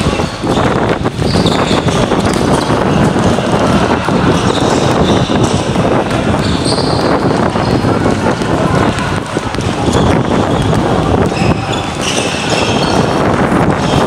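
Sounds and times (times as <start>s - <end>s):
basketball bouncing on hard court: 0.0s - 3.4s
running and shuffling footsteps: 0.0s - 14.0s.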